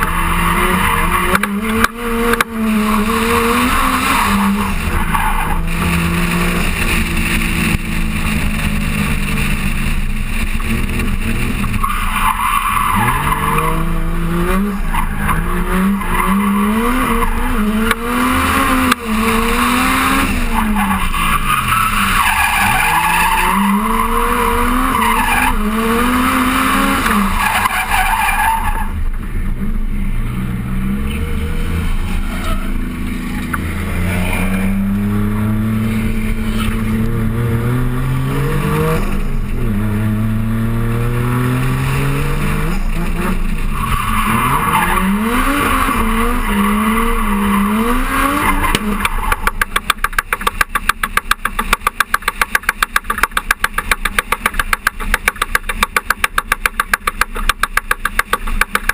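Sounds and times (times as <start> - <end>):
car engine revving: 0.0 - 58.9.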